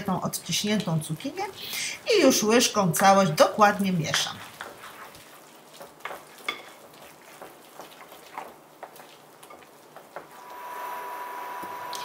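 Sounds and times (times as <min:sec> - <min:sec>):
spoon stirring thick batter: 0:02.2 - 0:10.4
spoon scraping bowl: 0:04.1 - 0:08.5.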